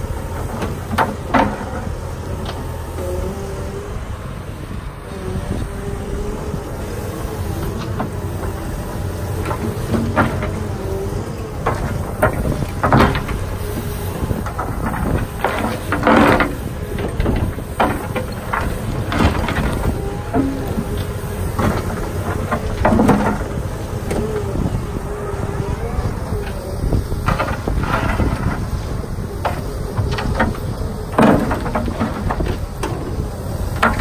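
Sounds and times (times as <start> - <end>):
excavator diesel engine under load: 0.0 - 34.0
steel bucket scraping dirt and stones: 7.6 - 34.0.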